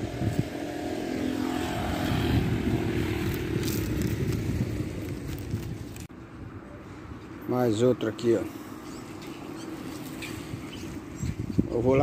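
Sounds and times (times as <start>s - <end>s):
passing vehicle engine rumble: 0.0s - 7.2s.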